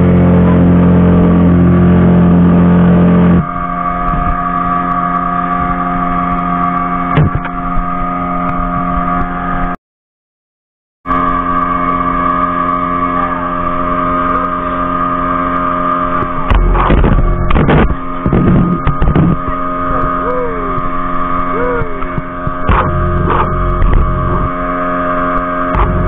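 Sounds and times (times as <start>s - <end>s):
motorboat engine running: 0.0s - 9.8s, 11.1s - 26.0s
rushing buffeting bursts: 11.2s - 26.0s.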